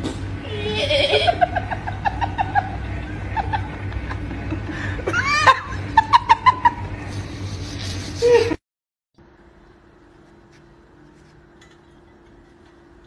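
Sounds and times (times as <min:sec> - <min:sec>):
high rising and falling cry: 0:00.4 - 0:03.8, 0:04.8 - 0:06.9
person laughing: 0:00.5 - 0:08.6.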